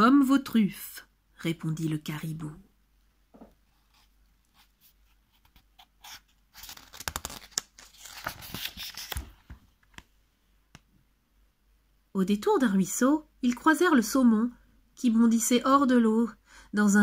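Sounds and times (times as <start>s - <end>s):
book page turning: 3.7s - 10.1s.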